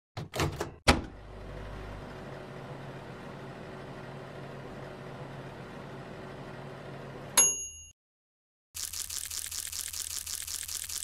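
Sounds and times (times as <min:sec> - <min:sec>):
electric oven humming: 0:00.9 - 0:07.4.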